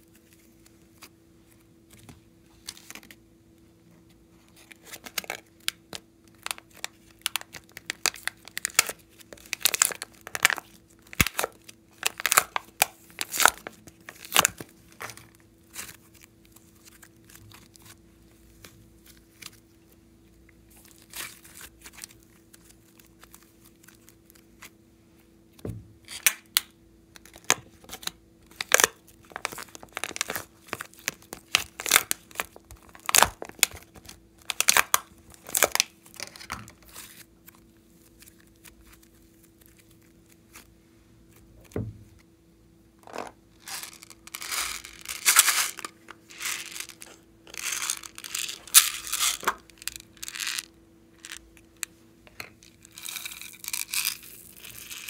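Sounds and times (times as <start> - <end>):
clay and slime squishing: 4.4 - 24.8, 27.1 - 42.3
sticky crackles and pops: 26.1 - 40.7.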